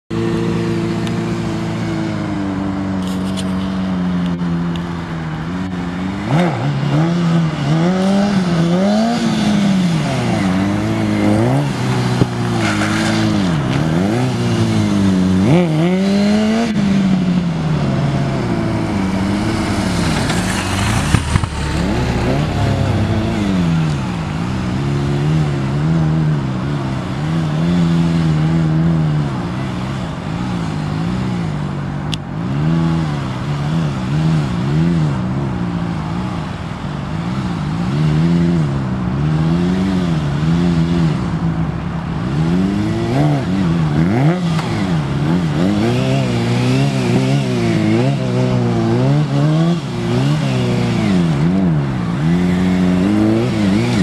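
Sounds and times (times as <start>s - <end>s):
motorcycle engine revving: 0.1s - 54.0s.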